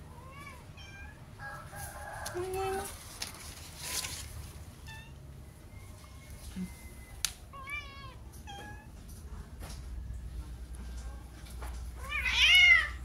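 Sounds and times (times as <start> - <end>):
cat meowing: 7.5 - 8.9, 12.0 - 13.0.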